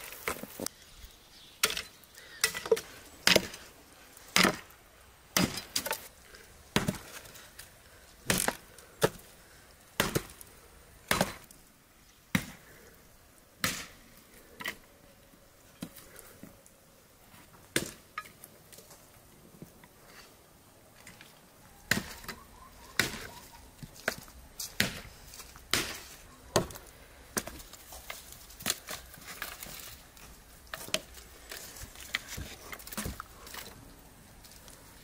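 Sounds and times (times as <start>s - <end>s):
axe chopping firewood: 1.6s - 3.6s, 4.3s - 4.7s, 5.4s - 6.1s, 6.7s - 7.4s, 8.2s - 9.3s, 10.0s - 11.5s, 12.3s - 12.7s, 13.6s - 14.0s, 17.7s - 18.4s, 21.9s - 23.4s, 24.0s - 29.9s.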